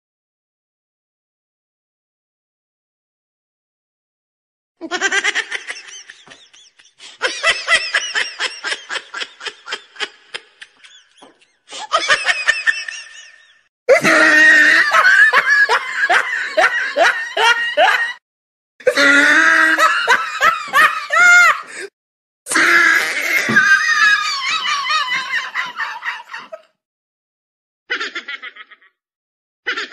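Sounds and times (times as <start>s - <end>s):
hearty laughter: 4.8s - 18.2s, 18.9s - 21.9s, 23.1s - 26.7s, 27.9s - 29.0s.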